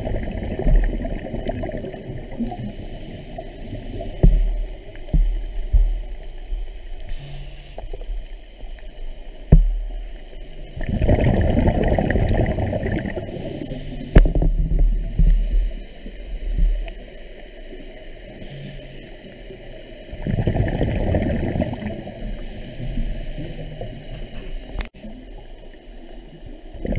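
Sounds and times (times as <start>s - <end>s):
diver exhaling gurgling bubbles: 0.0s - 6.3s, 10.8s - 15.8s, 20.1s - 24.8s
low underwater rumble: 0.0s - 26.9s.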